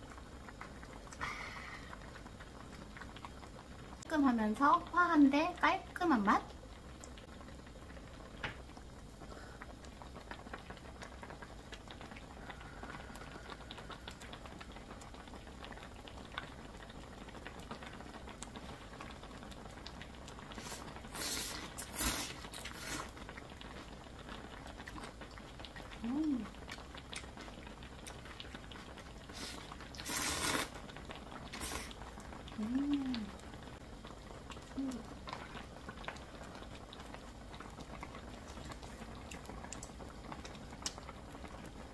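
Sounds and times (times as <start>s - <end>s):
broth bubbling in a pan: 0.0s - 41.9s
noodles slurped loudly: 20.5s - 23.2s, 29.2s - 32.0s
person humming mm: 26.0s - 26.6s, 32.5s - 33.4s, 34.7s - 35.1s.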